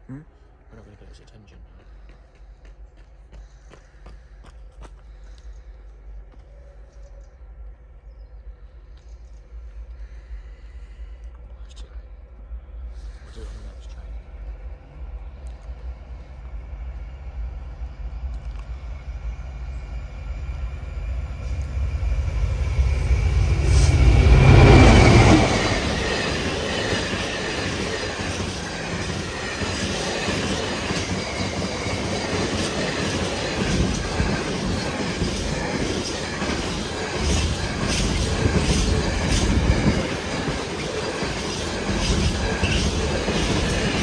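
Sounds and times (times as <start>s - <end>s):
diesel locomotive passing: 10.7s - 44.0s.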